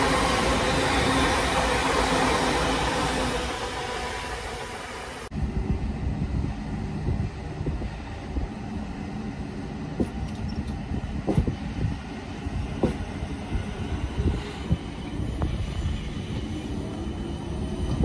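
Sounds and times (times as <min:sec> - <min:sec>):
train carriages rumbling: 0:05.6 - 0:18.0.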